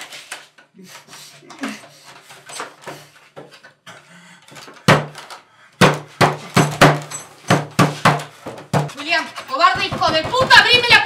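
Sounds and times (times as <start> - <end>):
knocking on wooden door: 5.8 - 9.0, 9.6 - 11.0.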